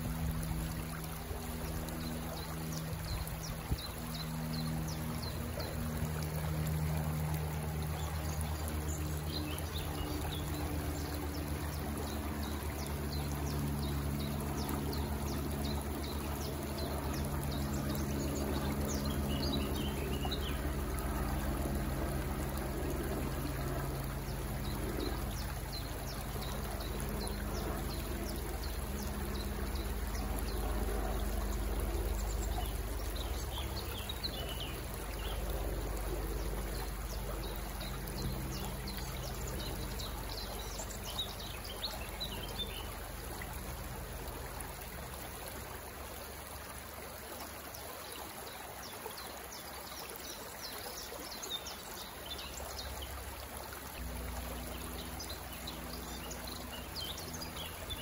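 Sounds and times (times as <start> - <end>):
low steady hum: 0.0 - 58.0
water trickling: 0.0 - 58.0
small birds chirping: 24.6 - 43.0.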